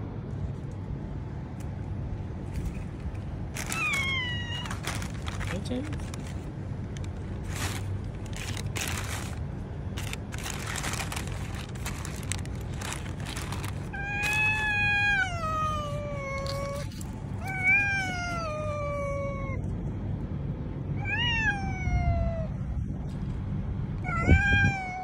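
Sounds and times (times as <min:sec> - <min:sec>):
low steady hum: 0:00.0 - 0:25.0
rustling: 0:02.4 - 0:14.8
cat meowing: 0:03.6 - 0:05.2, 0:13.9 - 0:19.6, 0:21.0 - 0:22.5, 0:24.0 - 0:25.0.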